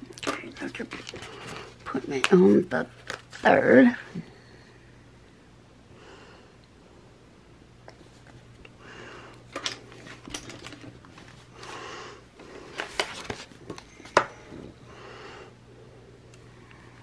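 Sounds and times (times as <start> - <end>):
paper rustling: 0.6 - 3.6, 12.7 - 13.8
soft breaths: 4.0 - 6.8, 7.9 - 9.5, 11.4 - 12.9, 13.9 - 17.0.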